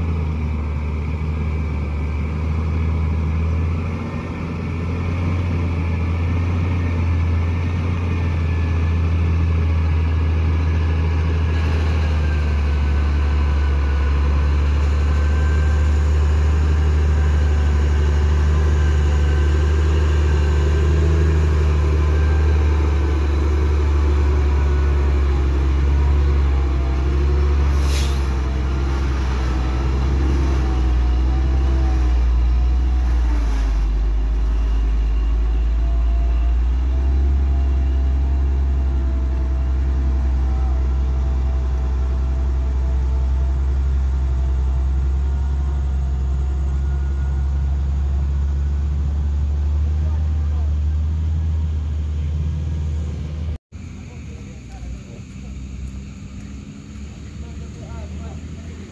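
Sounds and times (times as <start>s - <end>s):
truck diesel engine labouring: 0.0s - 58.9s
air hiss: 27.7s - 28.4s.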